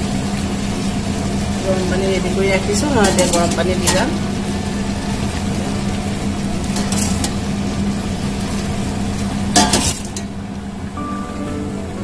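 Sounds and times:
steady low hum: 0.0 - 12.0
curry simmering: 0.2 - 10.9.

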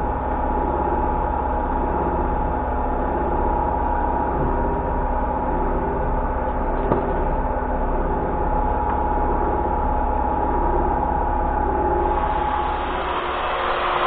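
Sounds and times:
metal lathe humming and whining: 8.5 - 14.0.

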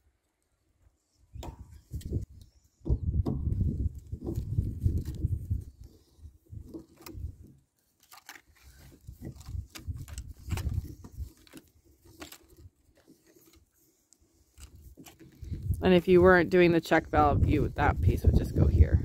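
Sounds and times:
wind rumble on microphone: 1.3 - 7.5, 8.8 - 11.4, 14.8 - 19.0
pipe fittings clicking and scraping: 1.4 - 15.8.

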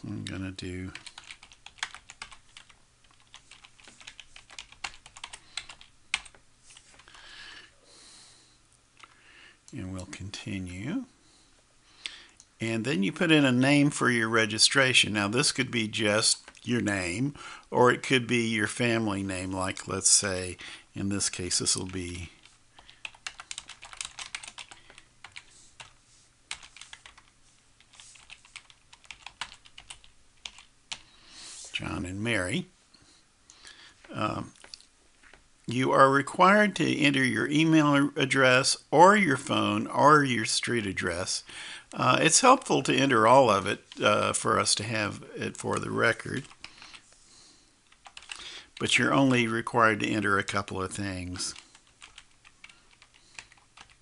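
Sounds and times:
typing on computer keyboard: 0.8 - 7.1, 22.8 - 27.3, 27.9 - 31.0, 48.0 - 48.4, 51.6 - 54.0
faint hiss: 30.9 - 35.0.

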